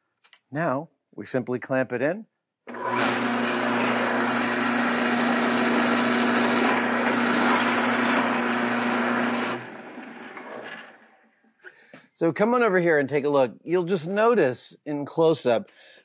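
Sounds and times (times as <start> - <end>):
drill bit cutting metal: 2.7 - 10.5
drill press motor hum: 2.7 - 11.3.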